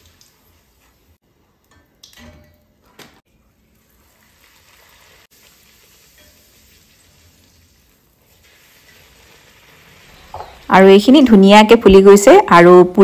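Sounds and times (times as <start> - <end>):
bread sizzling in hot oil: 0.0 - 1.2, 3.4 - 10.7.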